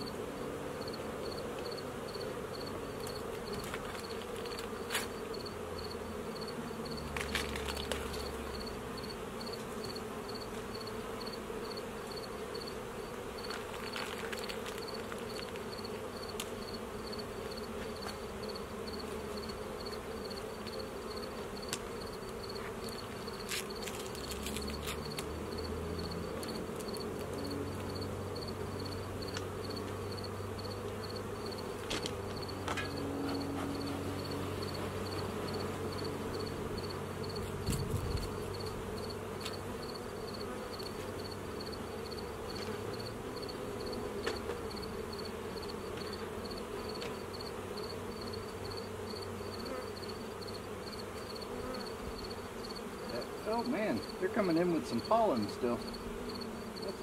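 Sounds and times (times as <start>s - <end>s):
bees buzzing: 0.0s - 57.0s
hive tool clicks and scrapes: 3.0s - 5.2s, 7.1s - 8.3s, 13.4s - 16.6s, 22.6s - 25.3s.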